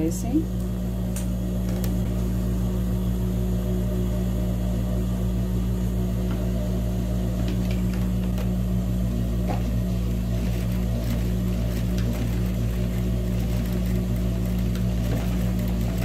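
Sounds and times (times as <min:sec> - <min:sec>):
sewing machine running: 0:09.1 - 0:16.0.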